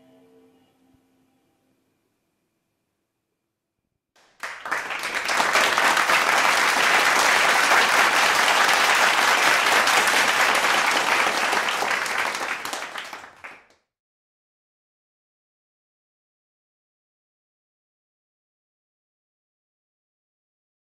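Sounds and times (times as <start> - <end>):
audience applauding: 4.2 - 13.8.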